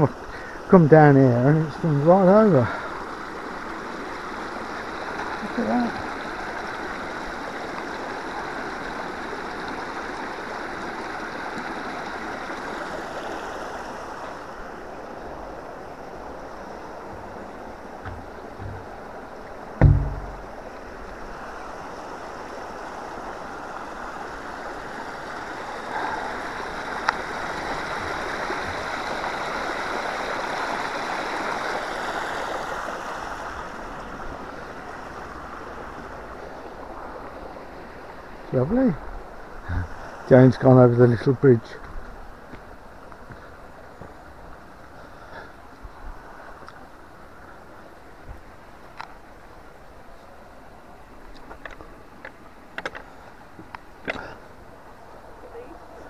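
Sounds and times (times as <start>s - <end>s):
water rushing over stones: 0.0s - 40.9s
loud low thump: 18.0s - 18.9s, 19.8s - 20.6s.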